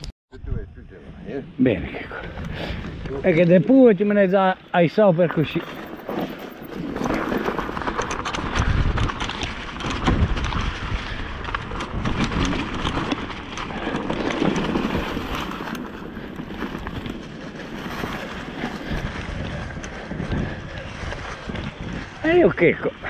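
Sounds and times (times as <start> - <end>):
bike tyres crunching over leaves: 4.9 - 23.0
bike clattering over bumps: 5.3 - 22.2
wind buffeting microphone: 5.9 - 23.0.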